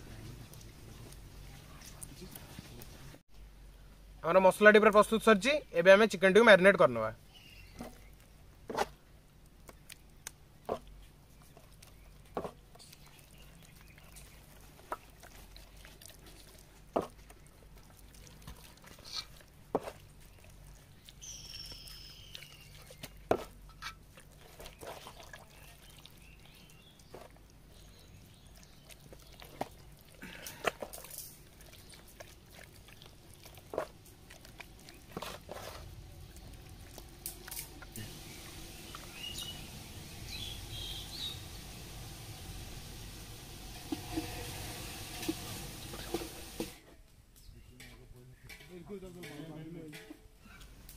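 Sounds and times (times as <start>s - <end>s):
bird chirping: 7.2s - 8.2s, 21.1s - 23.2s, 38.2s - 41.6s
hands squelching marinade: 9.5s - 39.6s.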